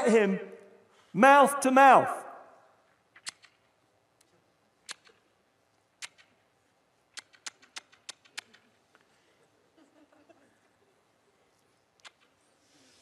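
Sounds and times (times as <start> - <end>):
faint sharp clicks: 3.2 - 6.4.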